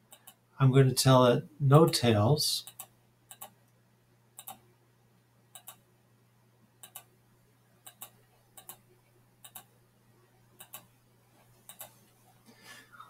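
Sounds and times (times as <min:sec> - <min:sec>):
faint steady low hum: 0:00.0 - 0:13.0
computer mouse buttons clicking: 0:02.6 - 0:03.6, 0:04.4 - 0:04.6, 0:05.5 - 0:05.8, 0:06.8 - 0:07.1, 0:07.8 - 0:08.8, 0:09.4 - 0:09.7, 0:10.6 - 0:10.9, 0:11.6 - 0:12.0.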